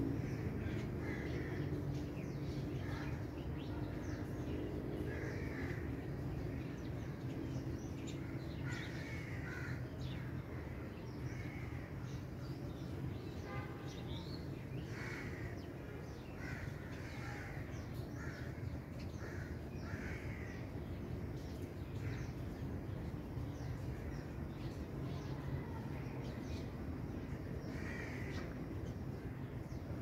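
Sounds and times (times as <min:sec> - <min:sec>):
low background hum: 0:00.0 - 0:30.0
crows cawing: 0:05.1 - 0:05.9, 0:08.6 - 0:10.1, 0:14.9 - 0:15.6, 0:16.4 - 0:20.8, 0:27.7 - 0:28.5.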